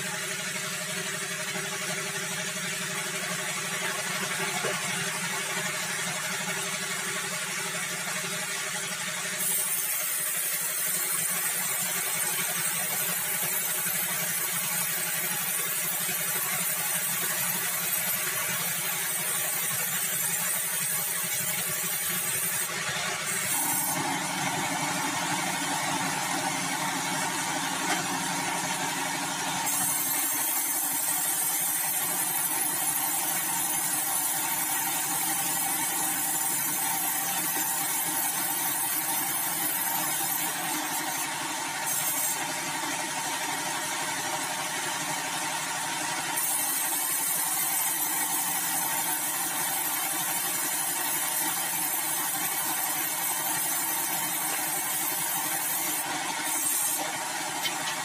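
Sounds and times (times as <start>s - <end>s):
band saw running: 0.0s - 58.0s
saw blade hissing in wood: 16.6s - 24.1s, 29.6s - 42.4s, 51.1s - 58.0s.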